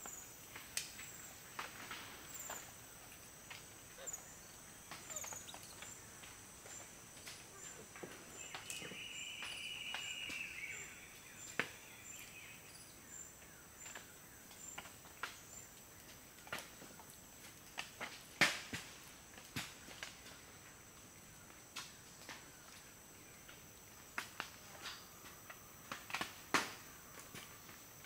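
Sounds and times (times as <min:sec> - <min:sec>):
high insect sound: 0:00.0 - 0:17.8.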